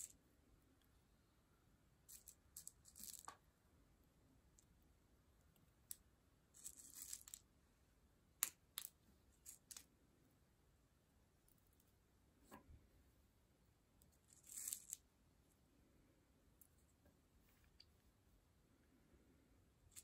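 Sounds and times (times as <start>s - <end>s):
beads clicking and rustling: 2.1s - 3.4s, 5.9s - 7.5s, 8.4s - 9.9s, 14.0s - 15.1s.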